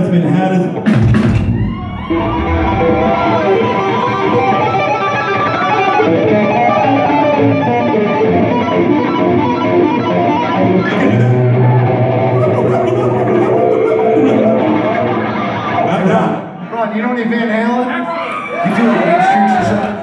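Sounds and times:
electric guitar notes with bends: 0.8 - 16.6.

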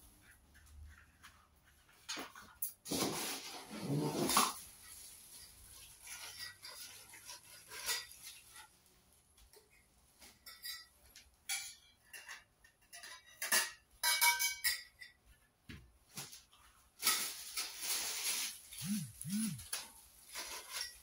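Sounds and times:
plastic wrapping rustling: 2.9 - 9.3, 16.2 - 21.0
metal tubes clinking and rattling: 9.6 - 15.2.

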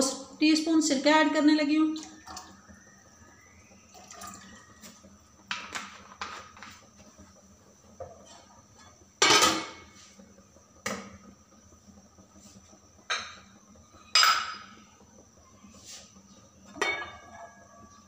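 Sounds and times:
metal pot lid clanking: 8.2 - 9.8, 14.1 - 14.7, 16.7 - 17.4.

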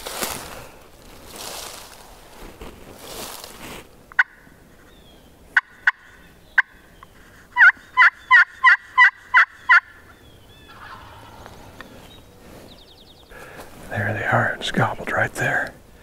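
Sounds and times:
turkey box call clucks and yelps: 4.1 - 5.0, 5.6 - 12.0.

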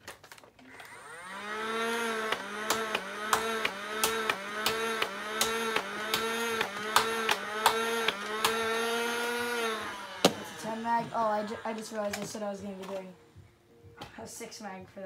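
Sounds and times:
flywheel motors whining: 0.7 - 12.4.

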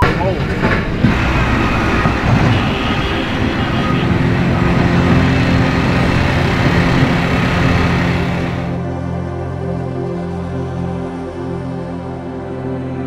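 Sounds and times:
vehicle engines running: 0.0 - 8.9.

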